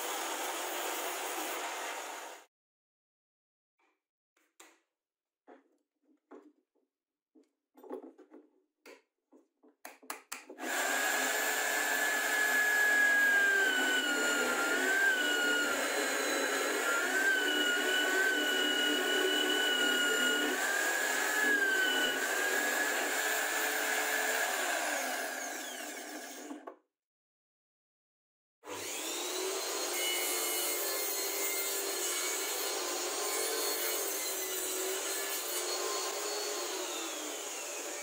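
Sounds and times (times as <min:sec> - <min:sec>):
drill press motor whine: 0:10.6 - 0:26.6.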